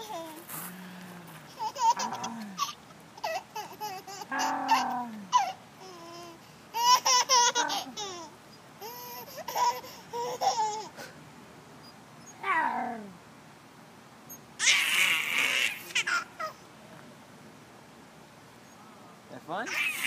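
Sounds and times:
baby laughing and squealing: 0:00.0 - 0:00.5, 0:01.5 - 0:11.0, 0:14.6 - 0:16.6, 0:19.7 - 0:20.0.

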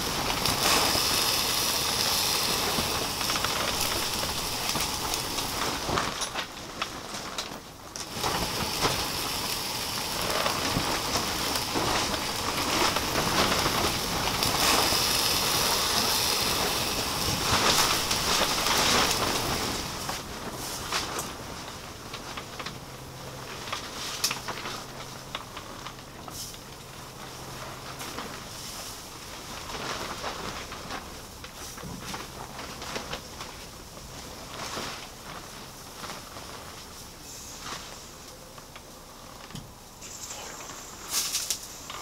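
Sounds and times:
meat sizzling on a grill: 0:00.0 - 0:05.9, 0:08.1 - 0:20.0.

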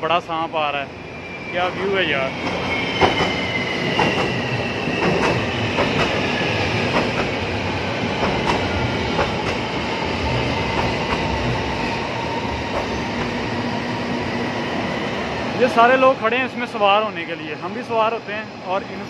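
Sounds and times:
train whine: 0:00.0 - 0:19.0
train rumble: 0:00.7 - 0:19.0
train wheel clack: 0:02.4 - 0:07.4, 0:08.2 - 0:11.7, 0:12.7 - 0:13.4.

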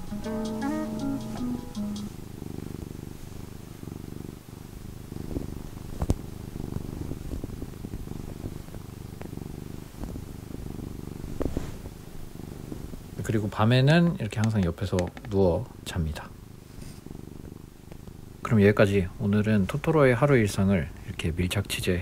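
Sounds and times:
cat purring: 0:00.0 - 0:22.0.

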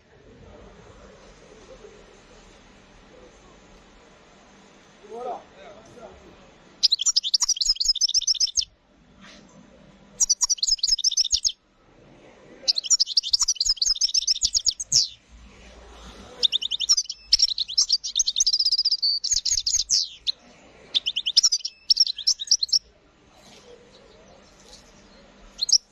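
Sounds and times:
goldfinch singing high trills: 0:06.8 - 0:08.7, 0:10.2 - 0:11.6, 0:12.7 - 0:15.2, 0:16.4 - 0:22.8, 0:24.4 - 0:25.9.

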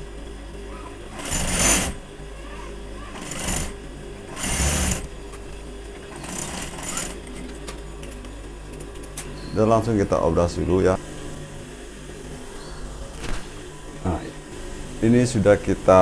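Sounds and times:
sewing machine stitching: 0:01.1 - 0:02.0, 0:03.1 - 0:05.1, 0:06.1 - 0:07.2.

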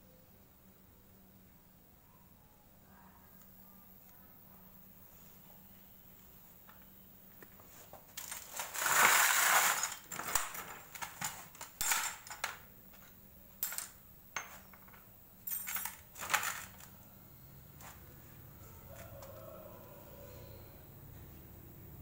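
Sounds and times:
rustling and rubbing handling noises: 0:07.3 - 0:11.8.

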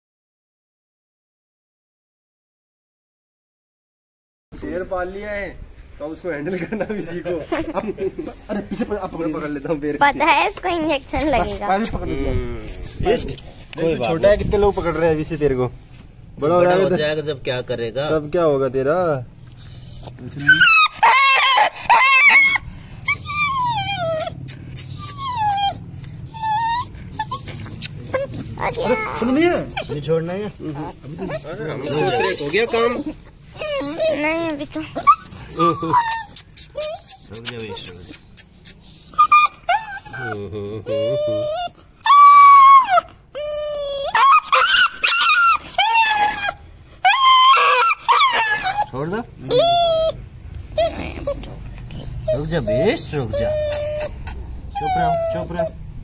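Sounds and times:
puppy whining: 0:19.4 - 0:56.0.

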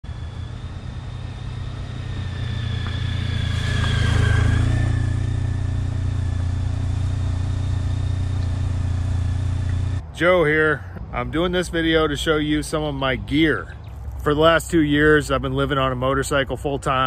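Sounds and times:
motorcycle engine: 0:00.0 - 0:10.0.

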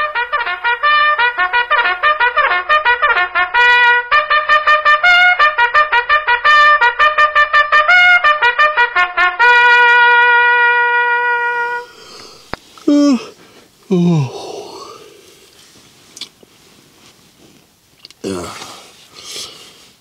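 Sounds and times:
trumpet tune: 0:00.0 - 0:12.4.

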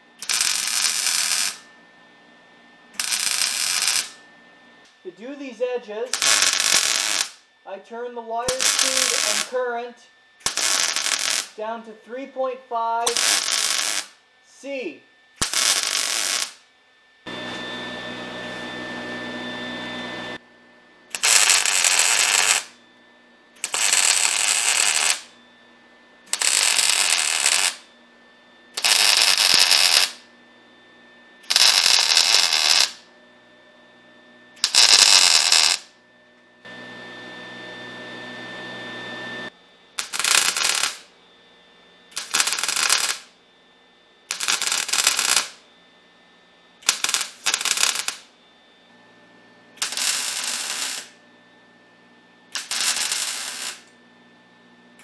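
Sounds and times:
welder steady hum: 0:00.0 - 0:55.0
welder arc crackling: 0:00.2 - 0:01.7, 0:03.0 - 0:04.2, 0:05.3 - 0:07.5, 0:08.4 - 0:09.7, 0:10.4 - 0:11.8, 0:13.0 - 0:16.7, 0:21.1 - 0:22.8, 0:23.6 - 0:25.4, 0:26.3 - 0:27.9, 0:28.8 - 0:30.2, 0:31.4 - 0:33.0, 0:34.6 - 0:35.9, 0:40.0 - 0:41.1, 0:42.1 - 0:43.3, 0:44.3 - 0:45.6, 0:46.8 - 0:48.3, 0:49.8 - 0:51.2, 0:52.5 - 0:54.0.

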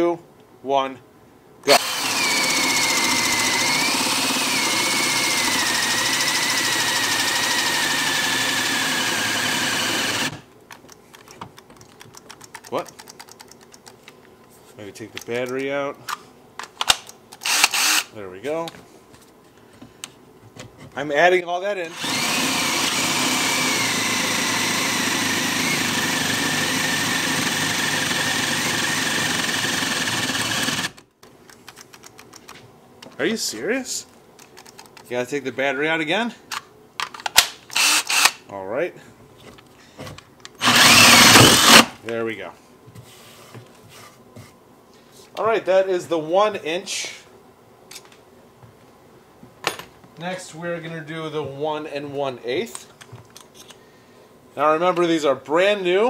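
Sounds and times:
drill motor whine boring wood: 0:01.7 - 0:10.4, 0:17.4 - 0:18.1, 0:21.9 - 0:31.0, 0:37.8 - 0:38.3, 0:40.6 - 0:41.9.

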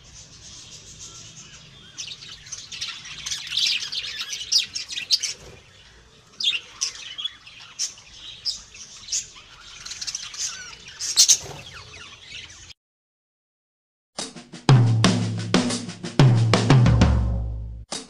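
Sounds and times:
budgerigars chirping: 0:00.0 - 0:12.7.

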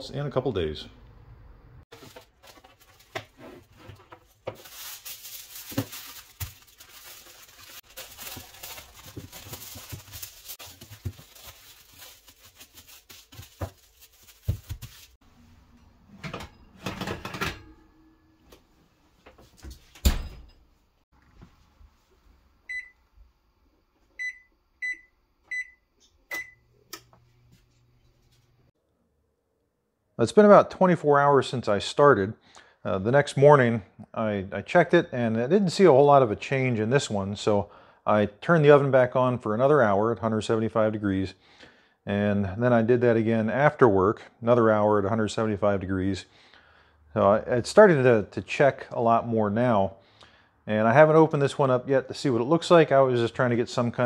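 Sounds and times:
aluminium foil crinkling: 0:01.9 - 0:03.2, 0:04.2 - 0:15.2.

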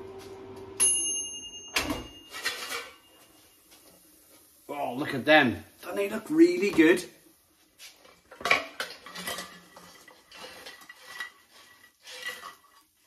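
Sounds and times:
fries clattering onto plate: 0:08.1 - 0:13.0.

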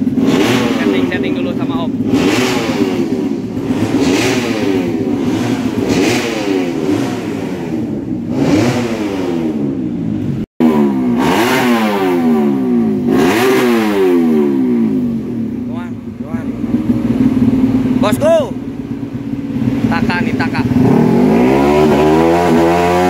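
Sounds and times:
racing motorcycle engines revving: 0:00.0 - 0:23.0.

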